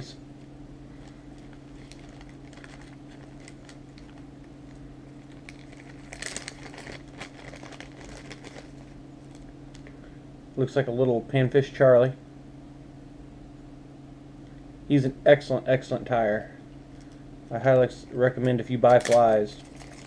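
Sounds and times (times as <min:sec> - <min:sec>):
steady low hum: 0:00.0 - 0:20.0
plastic bags crinkling: 0:00.9 - 0:09.9, 0:18.8 - 0:20.0.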